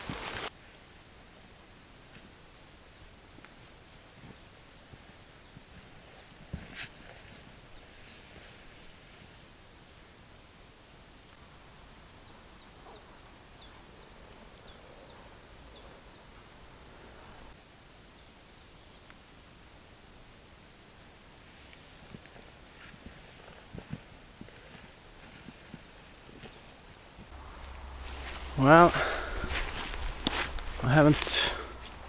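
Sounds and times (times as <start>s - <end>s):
footsteps through wet grass: 0.0s - 0.6s, 21.4s - 32.0s
forest ambience: 0.0s - 32.0s.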